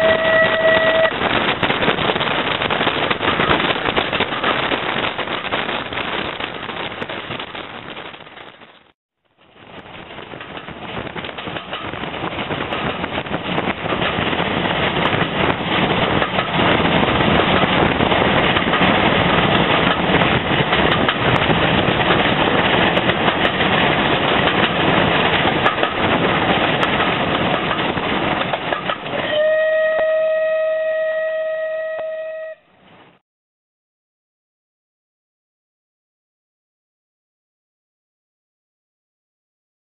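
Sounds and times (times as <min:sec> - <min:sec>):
steam whistle steady note: 0:00.0 - 0:01.1, 0:29.2 - 0:32.7
steam train running at speed: 0:00.0 - 0:08.4, 0:09.4 - 0:33.2.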